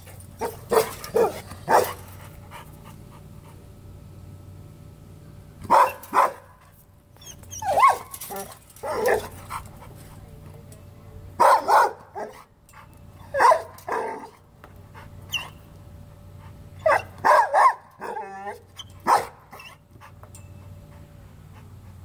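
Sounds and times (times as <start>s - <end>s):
dog barking: 0.4s - 2.0s, 5.7s - 6.6s, 11.4s - 12.4s, 13.3s - 14.4s, 16.8s - 19.6s.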